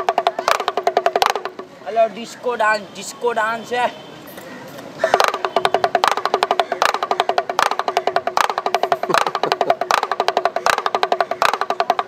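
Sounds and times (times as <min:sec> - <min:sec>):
small drum rattling: 0:00.0 - 0:01.7, 0:05.1 - 0:12.0.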